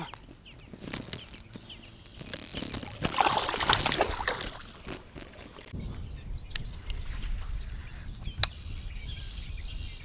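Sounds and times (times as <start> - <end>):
shallow water splashing: 2.4 - 5.7.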